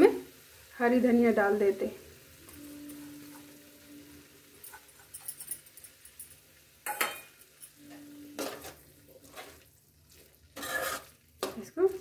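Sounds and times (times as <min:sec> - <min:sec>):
steel bowl clinking: 0:02.4 - 0:09.6
metal ladle scraping pan: 0:06.8 - 0:11.8.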